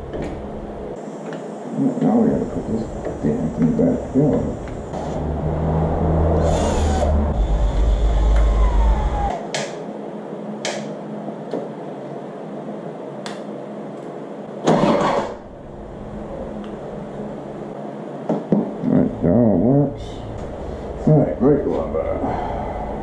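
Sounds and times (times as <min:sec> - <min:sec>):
low hum: 0:01.9 - 0:09.4, 0:15.0 - 0:18.0, 0:18.8 - 0:23.0.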